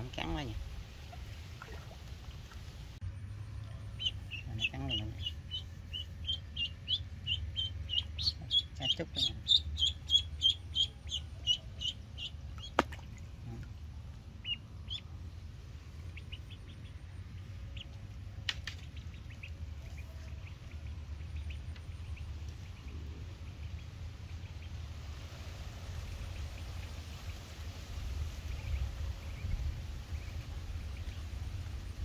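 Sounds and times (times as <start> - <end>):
duckling peeping: 3.8 - 13.8, 14.4 - 15.2, 16.1 - 18.0, 18.8 - 23.9.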